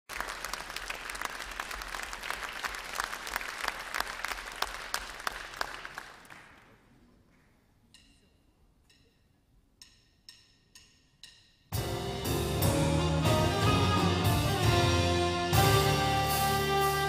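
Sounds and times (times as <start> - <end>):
audience clapping: 0.0 - 7.2.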